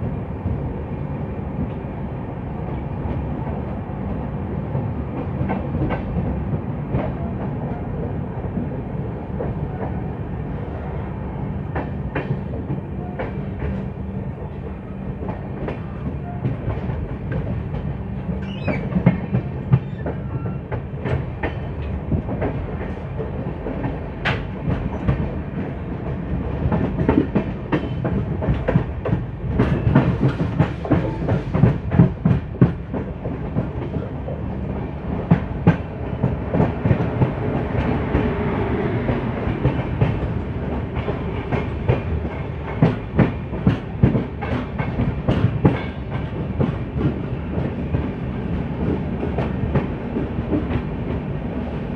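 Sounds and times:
train wheels rumbling: 0:00.0 - 0:51.9.

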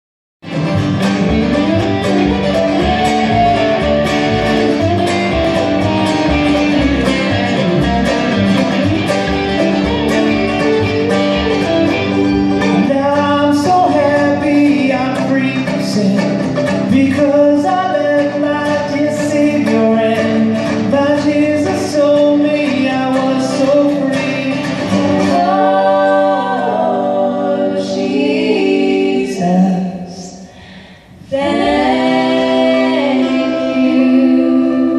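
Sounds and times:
electric guitar picking: 0:00.4 - 0:25.9
upright bass: 0:00.4 - 0:30.3
fiddle: 0:00.5 - 0:13.6
person singing: 0:10.1 - 0:30.3, 0:31.2 - 0:34.9.

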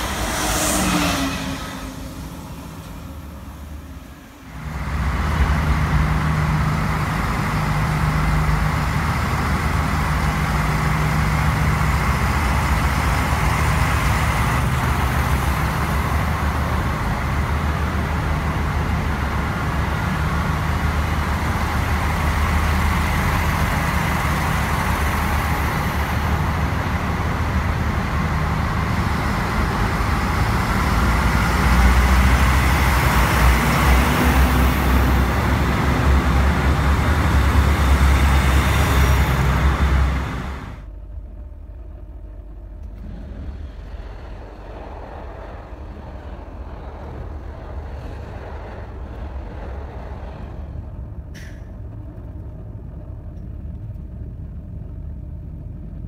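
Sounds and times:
thin high whine: 0:00.0 - 0:04.8
diesel train engines running: 0:00.0 - 0:56.0.

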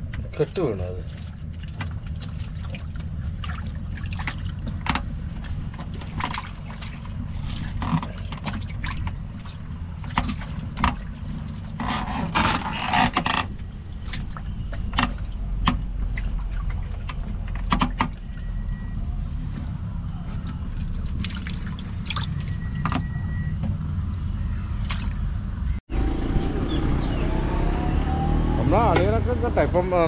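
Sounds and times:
knocks and scrapes: 0:04.6 - 0:18.2
boat engine droning: 0:22.0 - 0:30.0.

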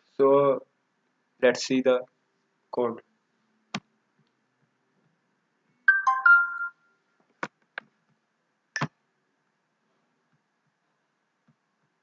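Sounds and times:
electronic notification chime: 0:05.9 - 0:06.8.

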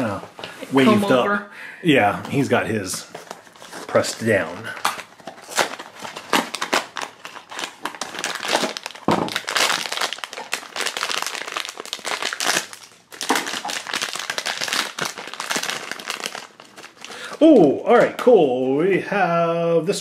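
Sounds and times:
foil bag crinkling: 0:03.3 - 0:17.4.

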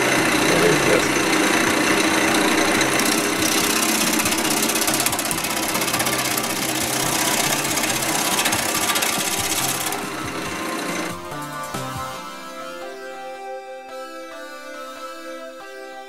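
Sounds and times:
gouge cutting wood on lathe: 0:00.0 - 0:11.8
lathe humming: 0:00.0 - 0:12.1.

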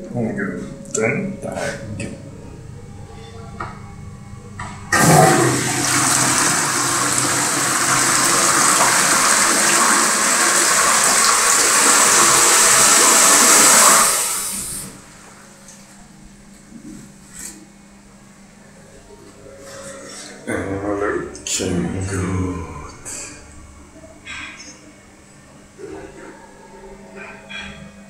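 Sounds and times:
toilet water rushing: 0:04.9 - 0:15.0.

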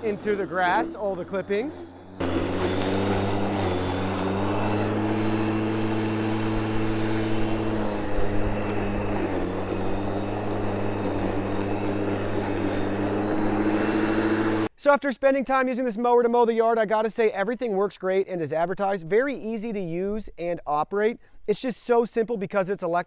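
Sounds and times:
electric lawn mower humming: 0:00.0 - 0:14.7.

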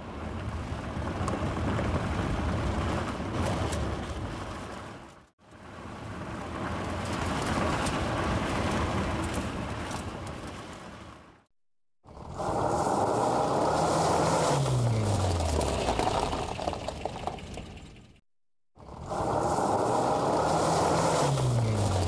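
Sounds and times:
vehicle driving by: 0:12.3 - 0:18.2, 0:19.0 - 0:22.0.

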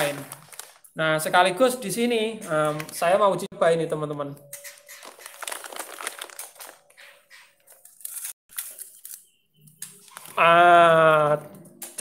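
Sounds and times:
paper pouches crinkling: 0:00.0 - 0:01.0, 0:04.6 - 0:09.2.

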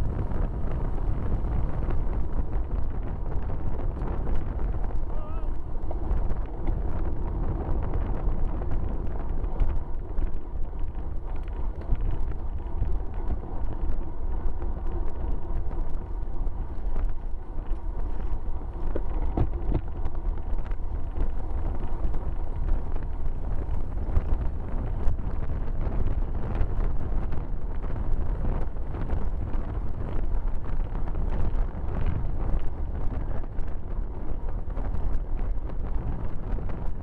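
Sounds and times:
wind rushing over microphone: 0:00.0 - 0:37.0.

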